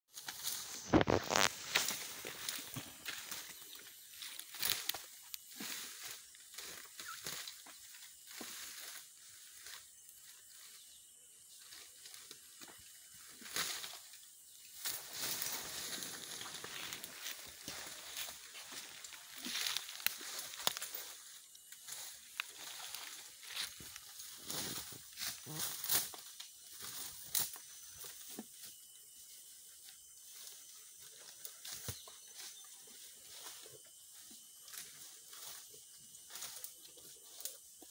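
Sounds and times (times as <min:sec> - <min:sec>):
elephant tearing up plants: 0:00.2 - 0:03.0.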